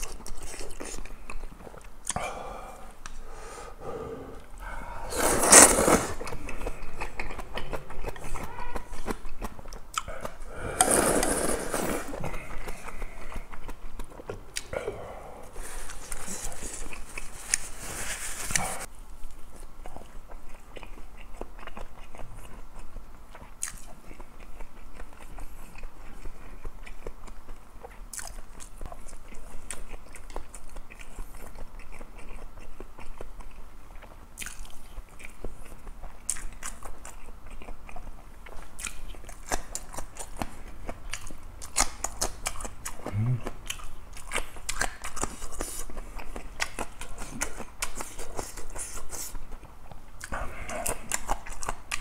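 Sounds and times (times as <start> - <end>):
person chewing food: 0.0 - 52.0
tissue rustling: 15.6 - 18.9.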